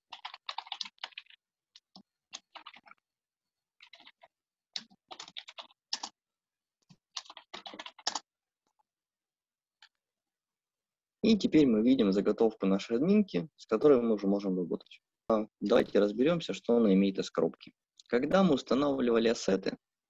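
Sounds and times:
typing on computer keyboard: 0:00.0 - 0:03.0, 0:03.8 - 0:06.2, 0:07.1 - 0:08.3.

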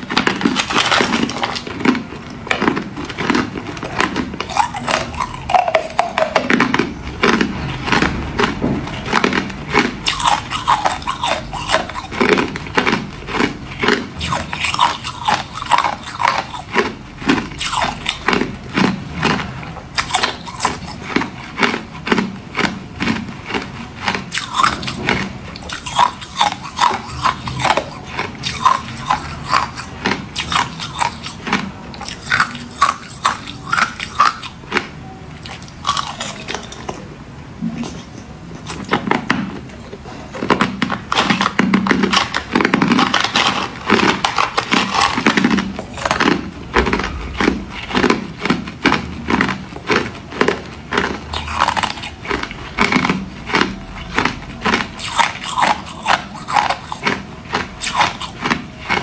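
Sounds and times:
ice cubes crunched between teeth: 0:00.0 - 0:34.8, 0:40.4 - 0:59.0.

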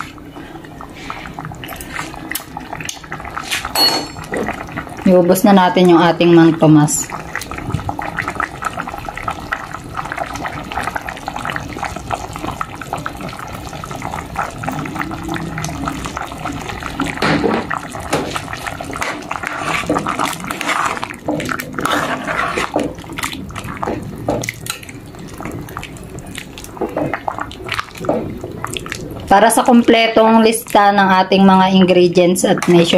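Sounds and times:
stew bubbling in pot: 0:00.0 - 0:32.9.

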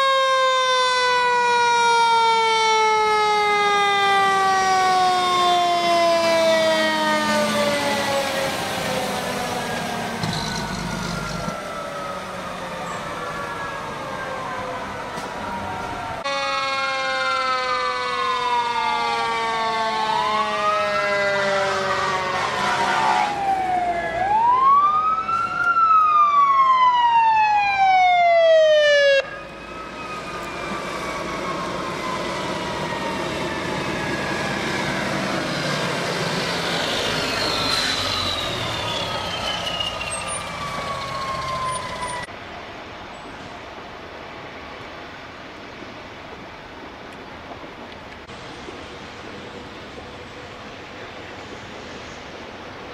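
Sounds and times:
fast warbling siren yelp: 0:00.0 - 0:42.3
fire engine sirens wailing: 0:00.0 - 0:42.4
traffic noise: 0:00.0 - 0:52.9.

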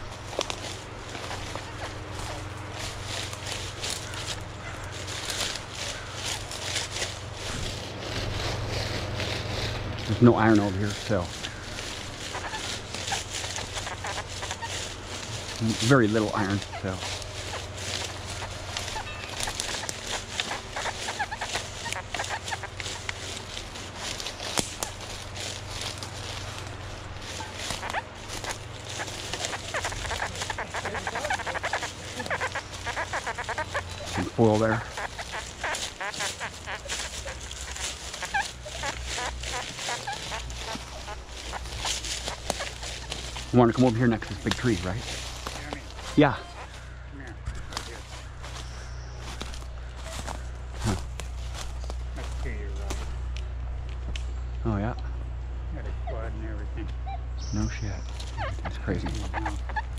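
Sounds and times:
metal detector coil swishing through leaves: 0:00.0 - 0:46.8
footsteps: 0:00.0 - 0:55.3
steady low hum: 0:00.0 - 0:59.9
twig snapping: 0:24.4 - 0:25.0.

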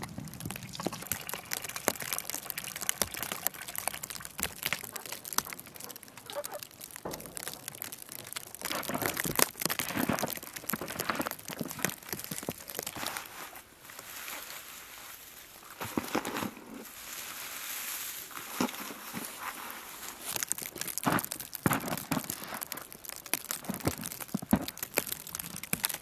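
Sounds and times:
hands rustling in straw: 0:12.6 - 0:25.2
footsteps crunching through snow: 0:12.9 - 0:22.8.

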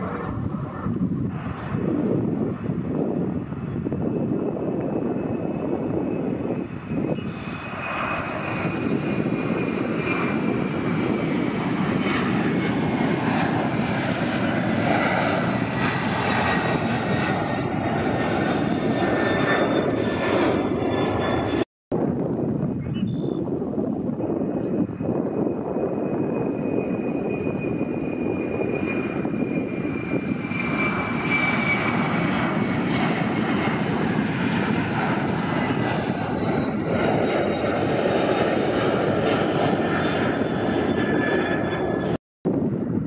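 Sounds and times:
high whining fan tones: 0:00.0 - 0:43.0
jet engines at takeoff: 0:00.0 - 0:43.0.

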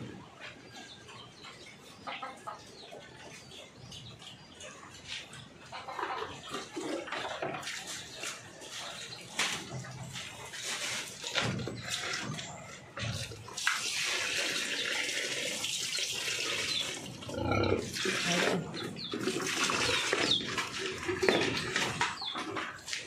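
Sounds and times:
pigs slurping and chomping: 0:06.3 - 0:23.0.

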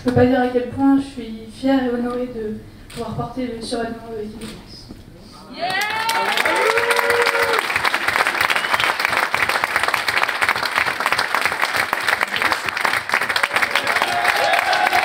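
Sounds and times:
crowd applauding: 0:05.6 - 0:15.0.

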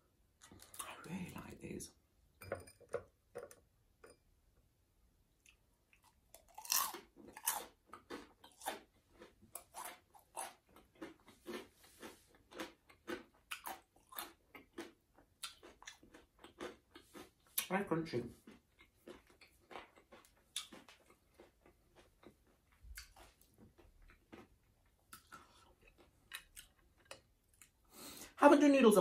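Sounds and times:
crunchy chewing: 0:05.4 - 0:17.7, 0:18.3 - 0:28.0
crunchy bites into fried food: 0:06.4 - 0:11.7.

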